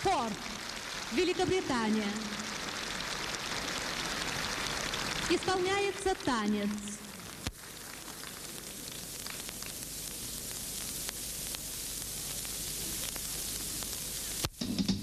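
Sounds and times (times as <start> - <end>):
recording hiss: 0.0 - 15.0.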